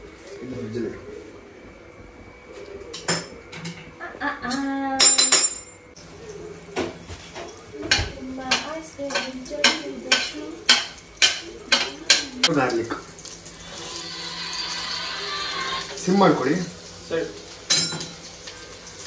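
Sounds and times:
spoon knocking and scraping pan: 0:06.8 - 0:12.5.

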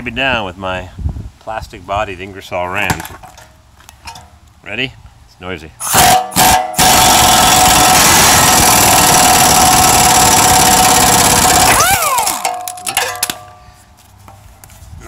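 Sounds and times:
air motor whining down: 0:05.8 - 0:12.6
air impact wrench running: 0:05.8 - 0:12.9.

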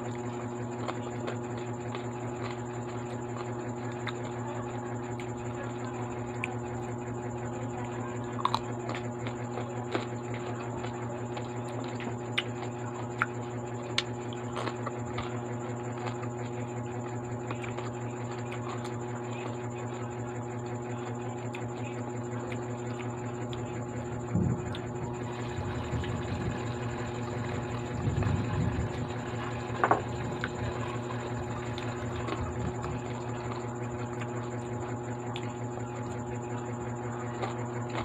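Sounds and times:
chewing fries: 0:00.0 - 0:38.0
steady low hum: 0:00.0 - 0:38.0.

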